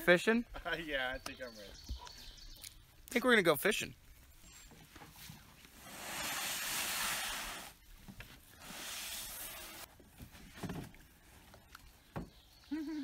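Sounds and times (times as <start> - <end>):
canoe hull scraping over sand: 5.1 - 7.8, 8.4 - 9.9.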